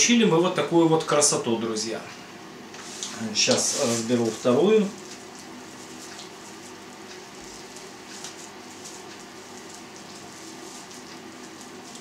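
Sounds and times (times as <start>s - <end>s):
low room hum: 0.0s - 12.0s
plastic wrap crackling: 2.8s - 12.0s.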